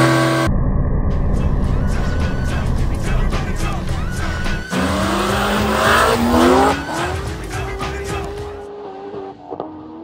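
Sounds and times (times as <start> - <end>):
car engines accelerating hard: 1.4 - 10.0.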